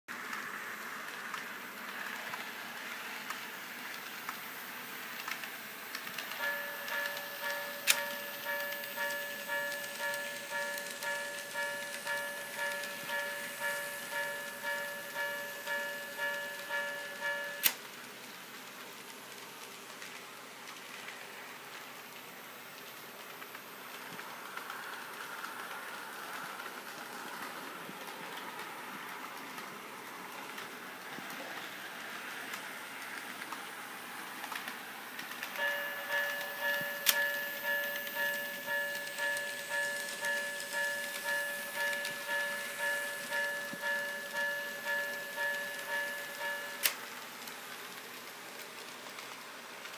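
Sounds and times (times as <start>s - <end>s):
model train wheels rattling on track: 0.2s - 49.9s
crossing bell dinging: 6.3s - 17.8s, 35.6s - 47.0s.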